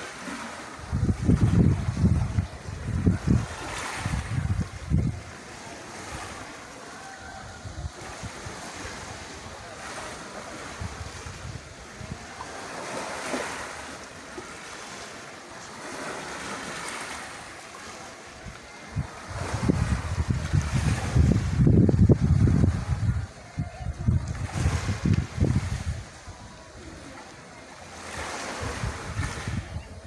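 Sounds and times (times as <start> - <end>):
sea waves washing onto shore: 0.0 - 30.0
wind buffeting microphone: 0.8 - 5.4, 7.2 - 13.5, 18.4 - 27.2, 28.1 - 30.0.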